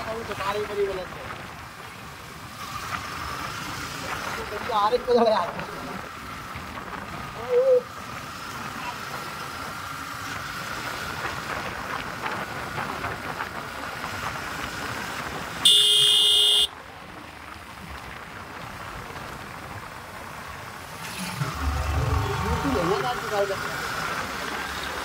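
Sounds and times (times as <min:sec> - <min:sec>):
wind noise: 0:10.4 - 0:15.8
motorcycle horn beep: 0:15.6 - 0:16.7.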